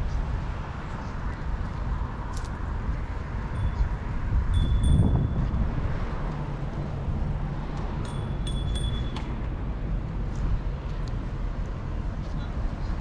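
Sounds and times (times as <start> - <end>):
wind rumble: 0.0 - 13.0
high ringing tone: 3.5 - 3.9, 4.5 - 5.5, 8.0 - 9.2.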